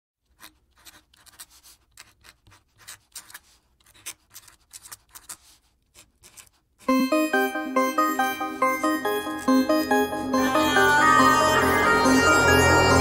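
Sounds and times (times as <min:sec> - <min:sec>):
pencil scratching on paper: 0:00.2 - 0:06.9.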